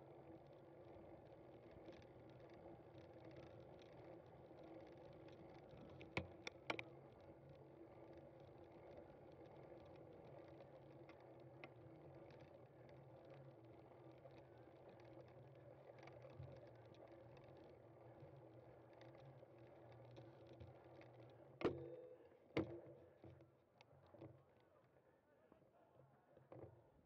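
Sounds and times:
bike tyres and drivetrain hum: 0.0 - 21.6.

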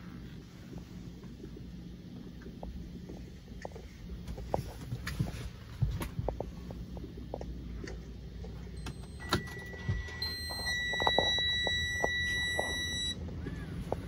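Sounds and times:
low rumble: 0.0 - 14.0
high electronic warning buzzer: 8.8 - 13.2.

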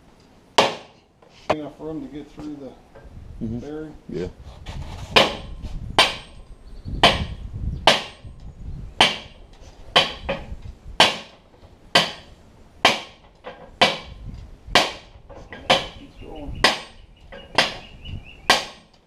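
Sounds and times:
sledgehammer striking steel shaft: 5.2 - 6.4, 9.0 - 14.2.

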